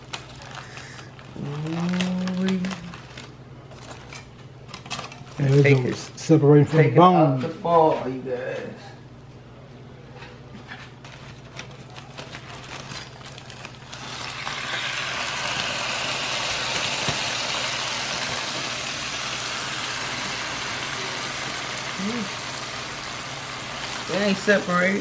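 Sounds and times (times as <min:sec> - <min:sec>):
aluminium foil crinkling: 0:00.0 - 0:06.0, 0:10.7 - 0:25.0
sizzling hiss: 0:14.0 - 0:25.0.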